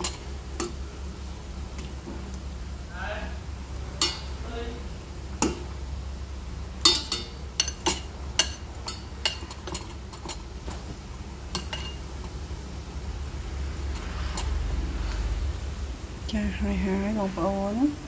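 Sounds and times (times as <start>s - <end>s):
low steady hum: 0.0s - 18.0s
metal utensil clinking on bowl: 6.8s - 10.4s, 11.5s - 12.0s.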